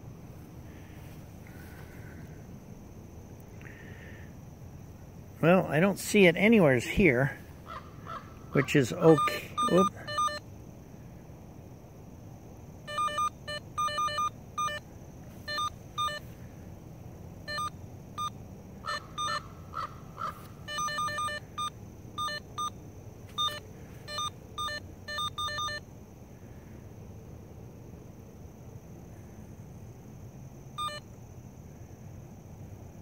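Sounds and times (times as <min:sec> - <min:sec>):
electronic beeps from cable locator: 0:09.0 - 0:10.4, 0:12.9 - 0:14.8, 0:15.5 - 0:16.2, 0:17.5 - 0:18.4, 0:19.2 - 0:19.4, 0:20.7 - 0:22.8, 0:23.4 - 0:25.8, 0:30.8 - 0:31.1.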